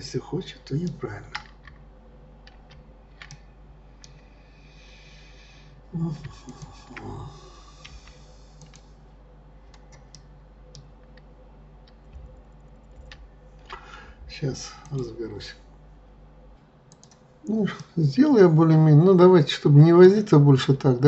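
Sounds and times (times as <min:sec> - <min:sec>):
faint steady hum: 0:00.0 - 0:21.0
computer mouse clicks: 0:02.4 - 0:04.2, 0:07.8 - 0:08.9, 0:09.7 - 0:11.2, 0:16.9 - 0:17.9
keyboard clicks: 0:02.4 - 0:04.2, 0:07.8 - 0:08.9, 0:11.8 - 0:13.8, 0:16.9 - 0:17.9.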